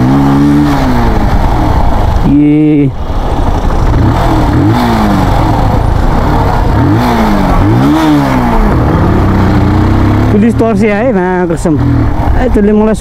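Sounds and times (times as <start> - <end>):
wind rushing: 0.0 - 10.3
motorcycle engine revving: 0.0 - 13.0
road noise: 0.0 - 13.0.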